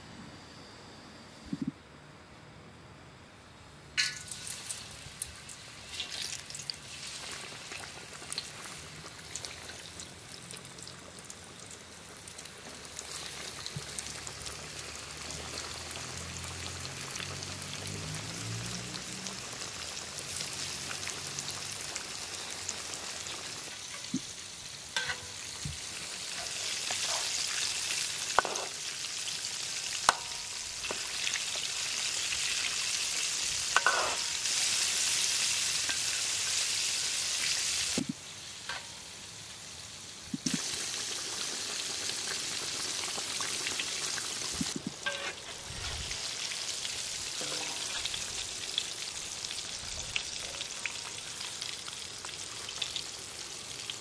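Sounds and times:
deep-frying sizzle: 4.0s - 54.0s
metal ladle clinking on pan: 25.0s - 25.4s, 33.8s - 34.4s.

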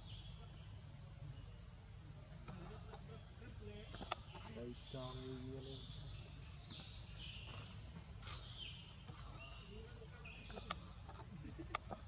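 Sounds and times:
high insect drone: 0.0s - 12.0s.

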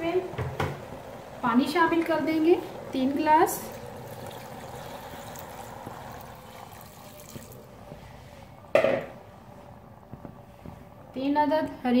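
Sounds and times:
water trickling into a pot: 2.3s - 8.1s.

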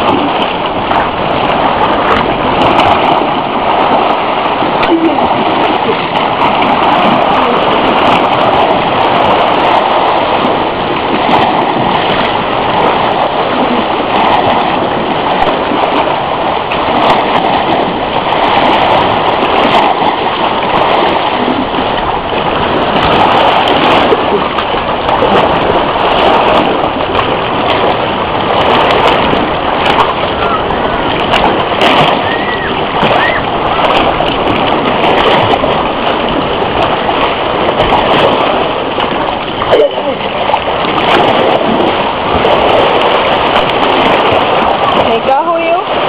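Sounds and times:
sea water splashing: 0.0s - 46.0s.

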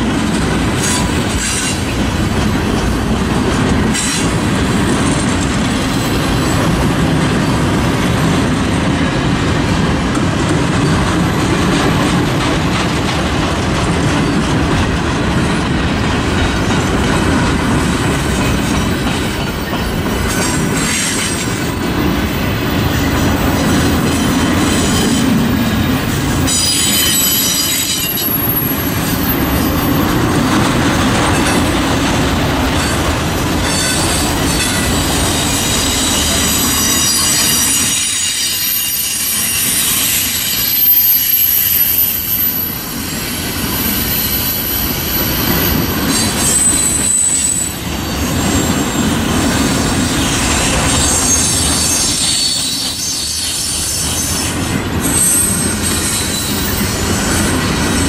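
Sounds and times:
train wheels rumbling on rail: 0.0s - 58.0s
high thin wheel squeal: 26.4s - 30.0s, 33.7s - 49.1s, 50.2s - 57.5s.

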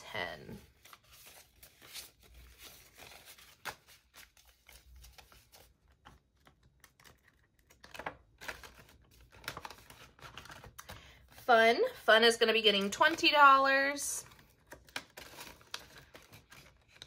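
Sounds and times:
banknotes rustling: 0.1s - 17.0s
plastic crinkling: 14.2s - 17.0s.

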